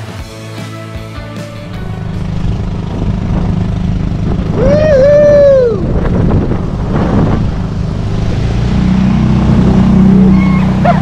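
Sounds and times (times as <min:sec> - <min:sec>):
outboard motor running: 0:01.4 - 0:11.0
water churning against hull: 0:01.6 - 0:11.0
person whooping: 0:04.5 - 0:06.0, 0:10.2 - 0:11.0.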